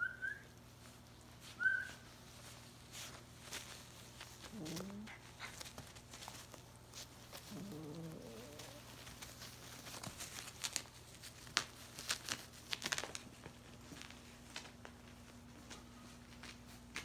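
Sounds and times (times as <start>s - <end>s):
bedding rustling: 0.3s - 17.0s
puppy whimpering: 4.5s - 5.6s, 7.4s - 8.9s.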